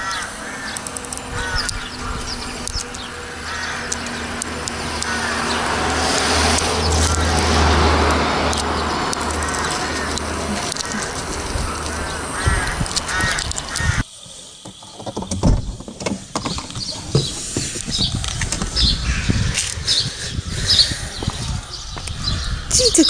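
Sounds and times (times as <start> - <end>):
crow cawing: 0.0 - 14.1, 19.0 - 19.9.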